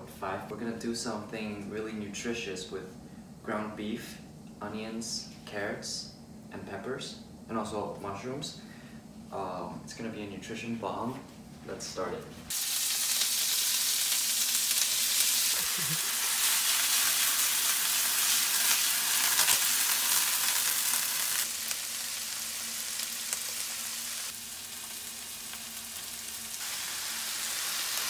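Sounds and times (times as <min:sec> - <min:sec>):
meat sizzling in a frying pan: 0:12.5 - 0:28.0.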